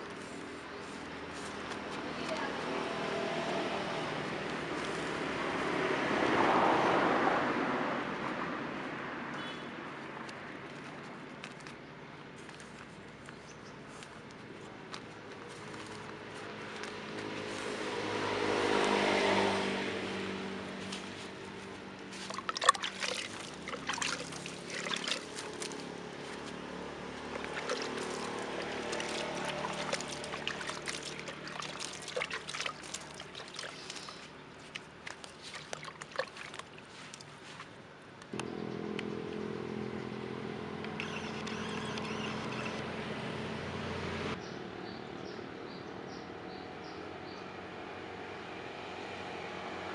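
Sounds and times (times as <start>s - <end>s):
vehicle engine passing by: 0.0s - 9.4s, 15.4s - 35.8s, 38.3s - 49.9s
hands pressing soil in a bag: 12.4s - 17.8s, 20.8s - 38.4s.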